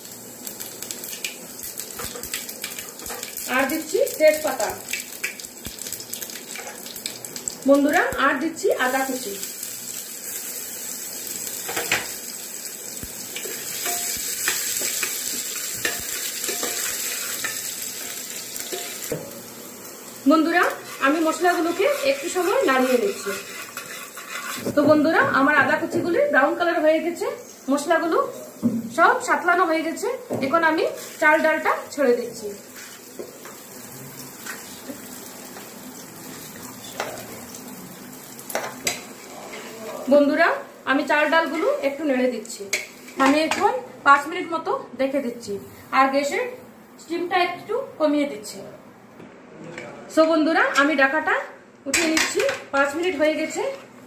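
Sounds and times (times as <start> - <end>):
spices sizzling in oil: 0.0 - 48.4
metal spatula scraping pot: 20.6 - 24.9.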